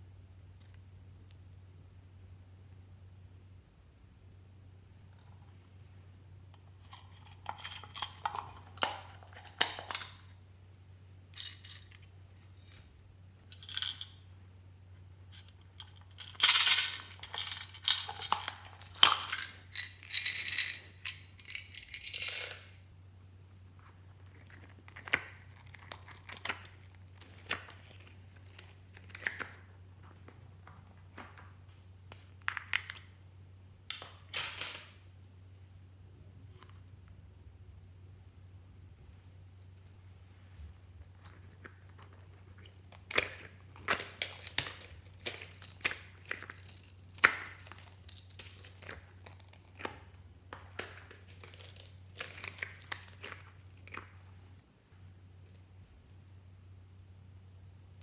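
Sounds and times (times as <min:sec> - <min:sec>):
plastic beads rattling: 0:06.7 - 0:10.3, 0:13.5 - 0:14.2, 0:15.3 - 0:22.8, 0:42.8 - 0:50.1, 0:50.8 - 0:54.1.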